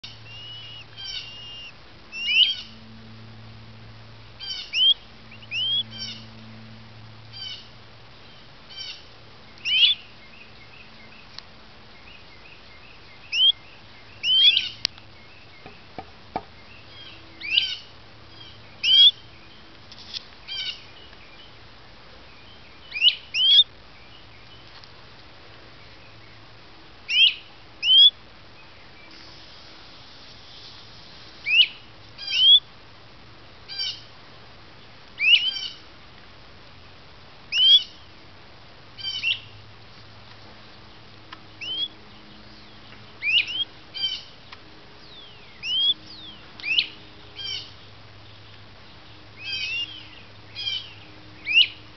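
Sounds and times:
nestling birds begging cheeps: 0.0s - 3.3s, 4.3s - 19.7s, 22.3s - 24.7s, 27.1s - 29.3s, 31.4s - 32.7s, 35.2s - 35.8s, 37.5s - 38.1s, 39.0s - 39.6s, 40.9s - 51.9s.

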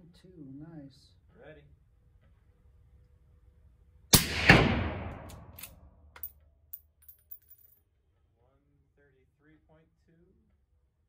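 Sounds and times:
suppressed rifle shot with echo: 4.1s - 5.6s.

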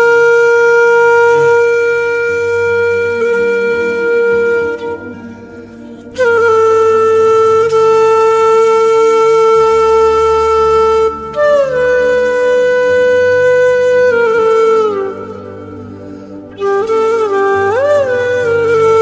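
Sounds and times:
woodwind long held notes: 0.0s - 19.0s
soft low sustained notes: 0.9s - 8.6s.

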